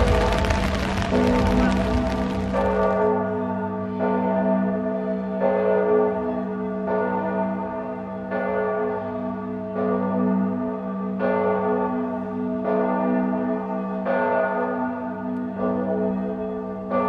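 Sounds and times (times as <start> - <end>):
steady deep hum: 0.0 - 3.0
large church bell tolling: 0.0 - 17.0.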